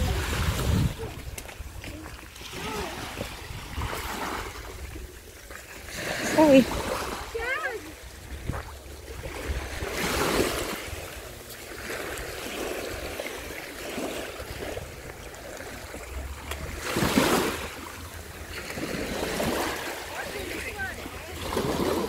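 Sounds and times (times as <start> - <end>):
wind rumble on microphone: 0.0 - 5.3, 8.0 - 11.5
small waves lapping on sand: 0.0 - 22.0.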